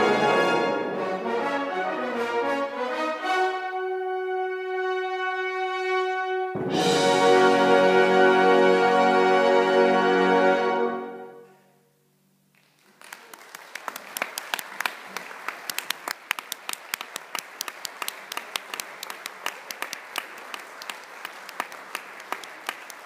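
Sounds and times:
brass band final chord: 0.0s - 11.4s
applause: 12.5s - 23.0s.

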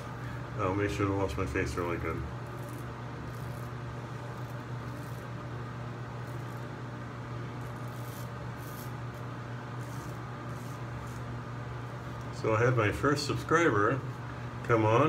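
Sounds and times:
steady low hum: 0.0s - 15.0s
razor scraping stubble: 1.8s - 6.8s, 7.5s - 11.5s.

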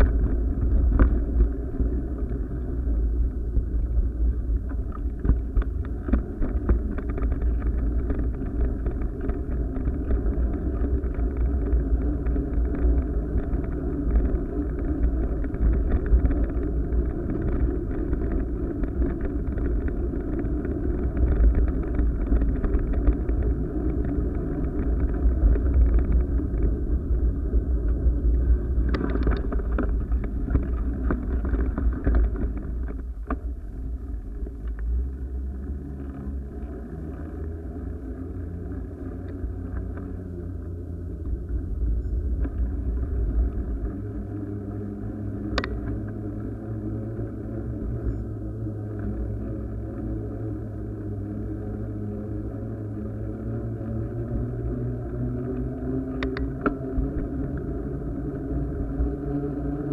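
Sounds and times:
low rumble and wind buffeting: 0.0s - 59.9s.

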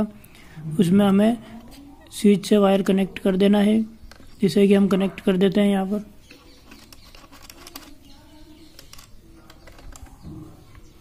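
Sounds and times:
screwdriver clicks and scrapes: 6.3s - 8.1s.

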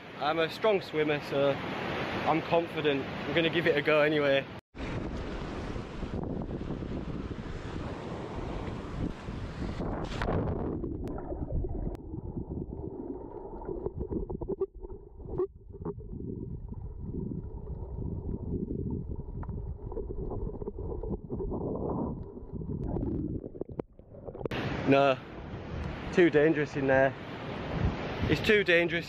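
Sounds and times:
underwater rushing water: 4.8s - 26.1s.

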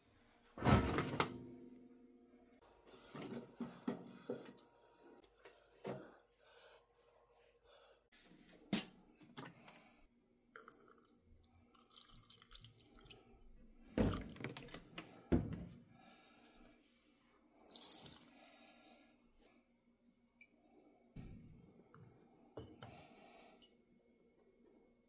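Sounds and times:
liquid detergent pouring: 10.6s - 13.3s.

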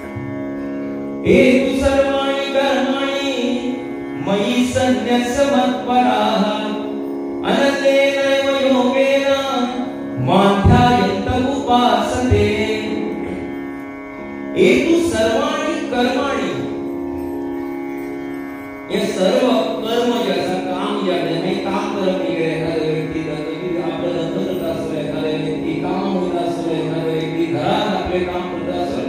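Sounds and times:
sustained instrumental drone: 0.0s - 29.0s
person chanting: 1.2s - 13.6s, 18.9s - 29.0s.

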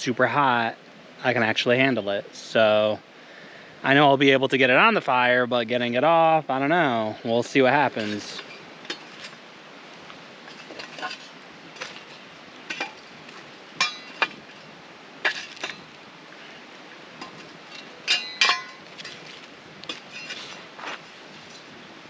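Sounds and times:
shovel clinking on rocks: 7.9s - 9.4s, 10.5s - 16.0s, 17.1s - 21.6s.

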